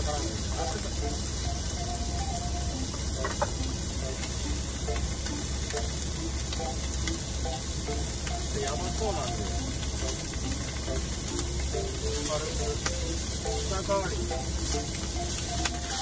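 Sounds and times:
chicken sizzling in a frying pan: 0:00.0 - 0:16.0.

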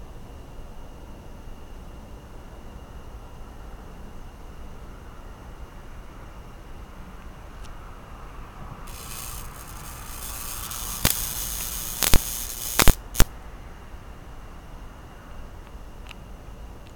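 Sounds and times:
bug zapper crackling sizzle: 0:08.9 - 0:13.3
loud sharp electric snaps: 0:08.9 - 0:13.3.

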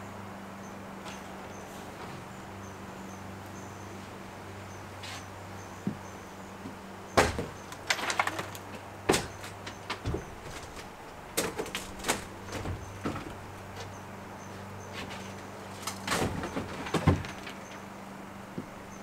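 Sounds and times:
steady low hum: 0:00.0 - 0:19.0
wooden knocks and clattering thuds: 0:05.8 - 0:14.0, 0:14.9 - 0:17.9, 0:18.5 - 0:18.8.

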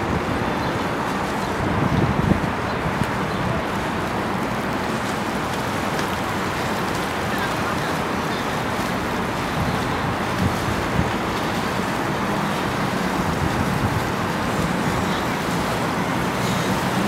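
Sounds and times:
water washing off hulls: 0:00.0 - 0:17.0
motorboat engine drone: 0:03.6 - 0:17.0.

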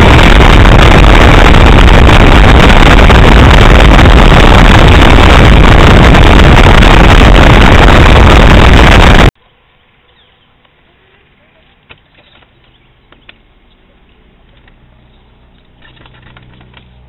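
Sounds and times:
wind buffeting microphone: 0:00.0 - 0:09.3.

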